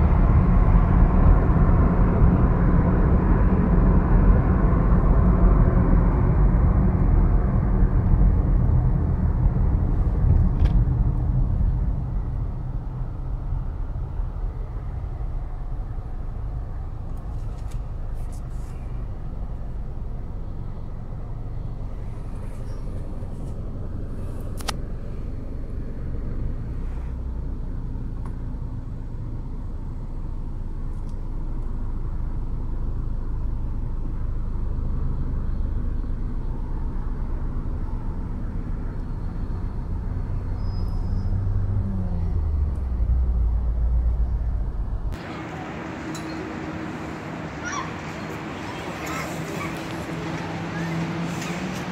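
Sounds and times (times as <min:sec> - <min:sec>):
engine and road rumble: 0:00.0 - 0:51.9.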